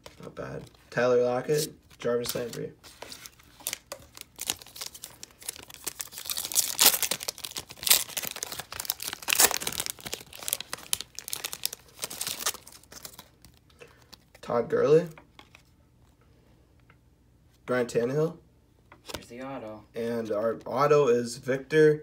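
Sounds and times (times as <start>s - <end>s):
card pack wrapper tearing: 3.5s - 13.6s.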